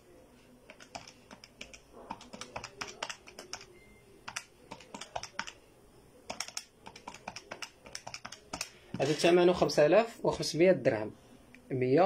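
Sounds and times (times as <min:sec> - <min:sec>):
keys clicking: 0:04.3 - 0:05.6, 0:06.3 - 0:08.7.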